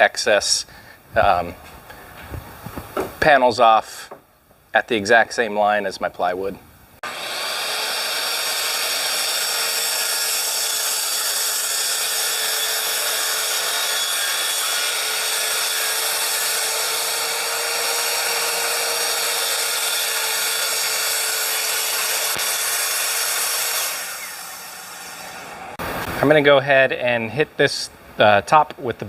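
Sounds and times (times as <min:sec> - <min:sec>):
circular saw cutting wood: 0:07.0 - 0:25.9.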